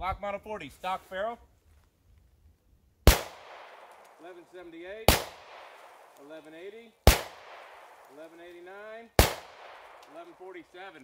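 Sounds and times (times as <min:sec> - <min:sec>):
pistol shots with echo: 0:03.0 - 0:04.3, 0:05.0 - 0:06.2, 0:07.0 - 0:08.3, 0:09.2 - 0:10.6.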